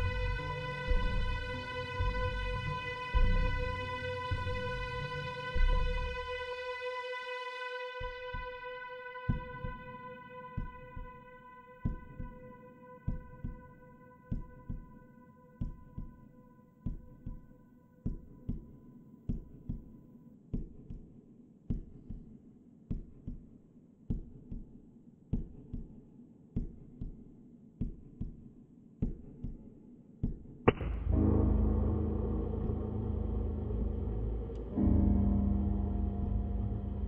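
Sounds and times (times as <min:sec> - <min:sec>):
heartbeat thumps: 0:00.0 - 0:06.3, 0:09.3 - 0:09.9, 0:10.6 - 0:11.2, 0:11.8 - 0:12.4, 0:13.1 - 0:14.9, 0:18.1 - 0:20.0, 0:22.9 - 0:23.5, 0:25.3 - 0:29.6, 0:30.2 - 0:37.0
music: 0:00.0 - 0:37.0
sharp hit: 0:30.7 - 0:37.0
held musical tone: 0:31.0 - 0:37.0.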